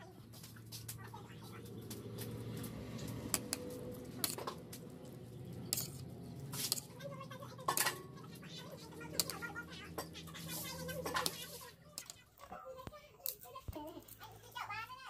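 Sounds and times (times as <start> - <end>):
spoon clicking on ceramic plate: 5.6 - 6.0, 9.2 - 10.2.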